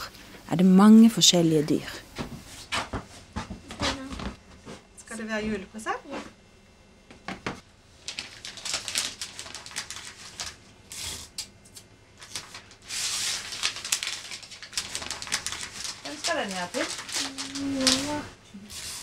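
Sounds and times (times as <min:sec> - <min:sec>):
paper crinkling: 0:08.0 - 0:11.2, 0:12.2 - 0:19.0.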